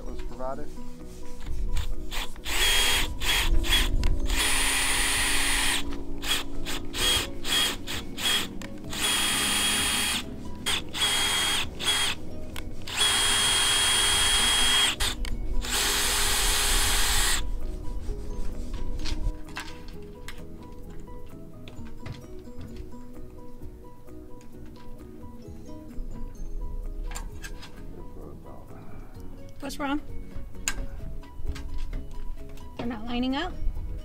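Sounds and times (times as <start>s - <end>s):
cordless drill motor whine: 2.1s - 12.2s, 12.8s - 17.5s.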